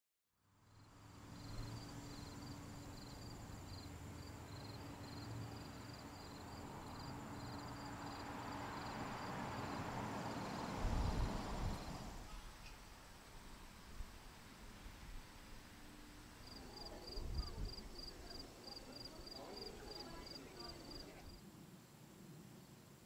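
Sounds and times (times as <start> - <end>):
insects chirping: 0.7 - 12.1, 16.4 - 21.4
rushing noise with low rumble: 9.3 - 12.3.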